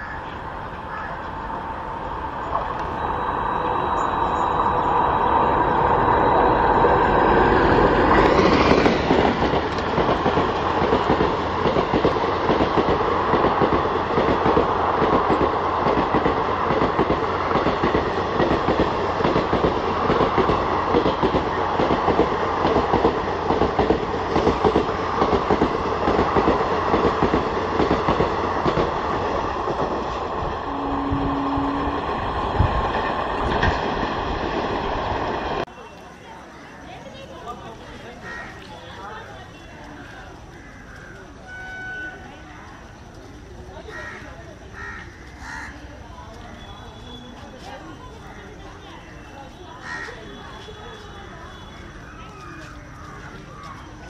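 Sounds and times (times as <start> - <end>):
locomotive passing: 0.0 - 54.0
train wheels clickety-clack: 6.9 - 30.6.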